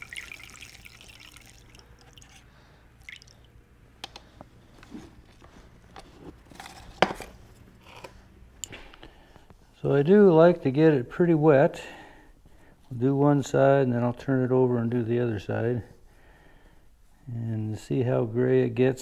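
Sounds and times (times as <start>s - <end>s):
liquid trickling and dripping: 0.0s - 3.6s.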